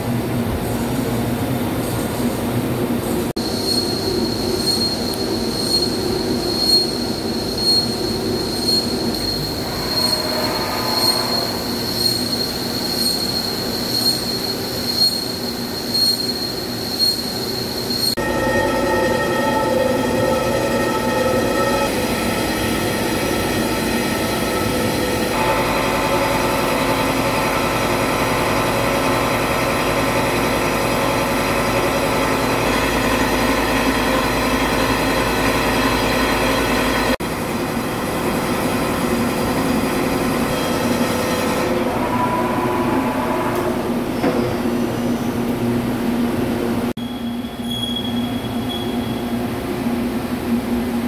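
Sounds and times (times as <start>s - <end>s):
ringing squeal tones: 3.4s - 26.8s, 40.5s - 45.4s, 47.0s - 49.4s
machining noise: 3.4s - 37.2s, 40.0s - 45.2s.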